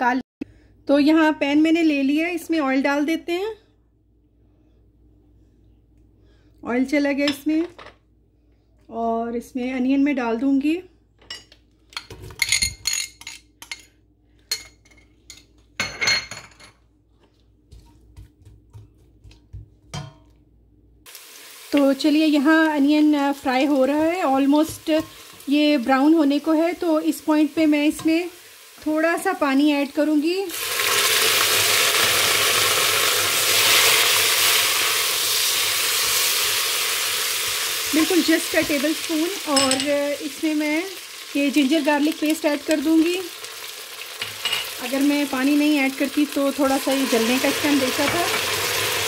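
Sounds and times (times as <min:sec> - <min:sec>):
wooden spatula stirring: 0:17.2 - 0:19.9
onions sizzling in hot oil: 0:21.1 - 0:49.0.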